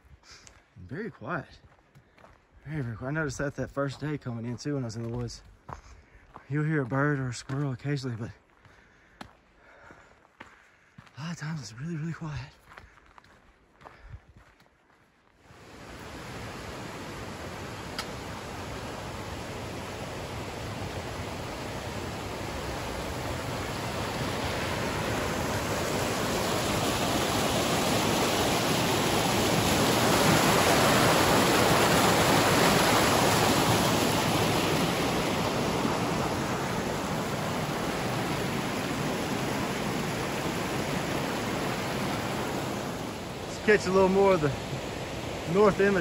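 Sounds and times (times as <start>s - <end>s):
creek flowing over rocks: 15.5s - 46.0s.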